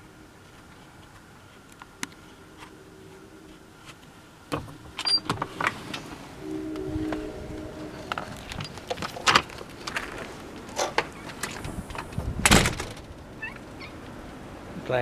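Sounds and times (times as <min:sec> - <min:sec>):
low background hum: 0:00.0 - 0:15.0
door squeak: 0:05.0 - 0:05.4.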